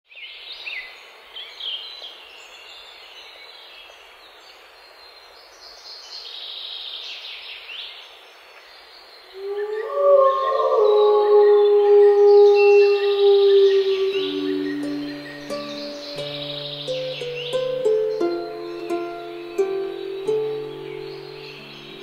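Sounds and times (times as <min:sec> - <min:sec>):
birds chirping: 0:09.3 - 0:22.0
rushing outdoor ambience: 0:12.8 - 0:22.0.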